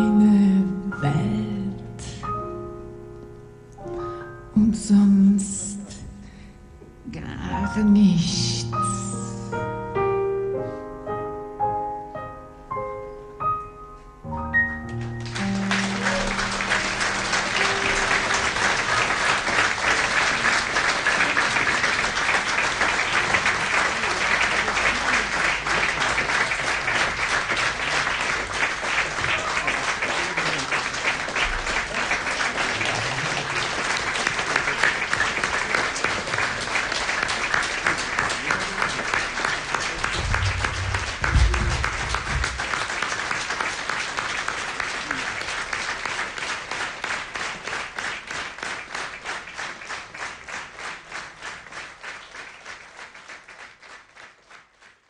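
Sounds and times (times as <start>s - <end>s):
piano chord: 0.0s - 6.5s, 7.4s - 20.3s, 40.0s - 43.2s
audience applauding: 14.9s - 55.0s
low thump: 40.2s - 42.6s.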